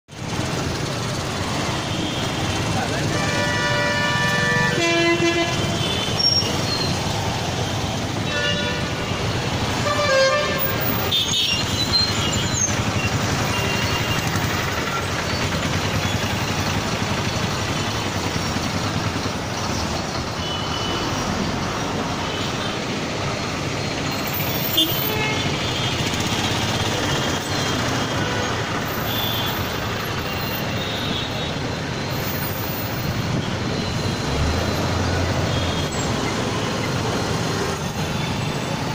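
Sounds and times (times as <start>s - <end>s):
road traffic rumble: 0.1s - 38.9s
vehicle horns tooting: 1.7s - 7.1s, 7.7s - 15.3s, 20.3s - 21.3s, 24.2s - 29.8s, 35.3s - 36.2s.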